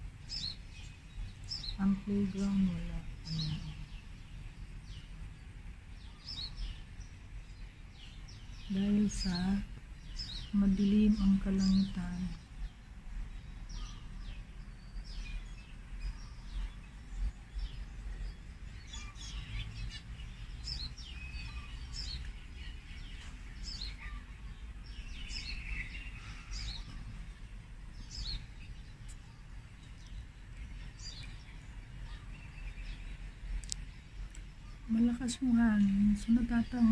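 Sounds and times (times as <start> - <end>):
birds chirping: 0.0 - 36.9.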